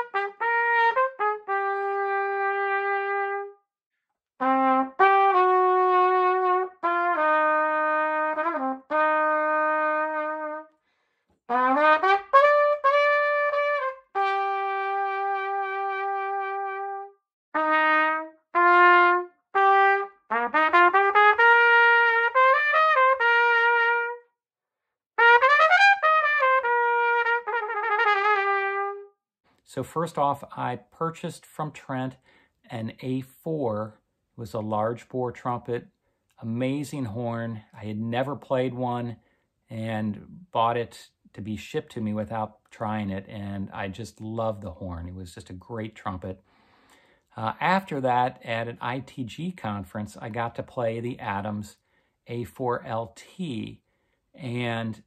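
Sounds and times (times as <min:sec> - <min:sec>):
solo trumpet melody: 0:00.0 - 0:03.6, 0:04.4 - 0:10.8, 0:11.5 - 0:24.4, 0:25.2 - 0:29.2
player breathing: 0:10.8 - 0:11.4, 0:32.2 - 0:32.6, 0:46.4 - 0:47.3, 0:51.8 - 0:52.2, 0:53.8 - 0:54.3.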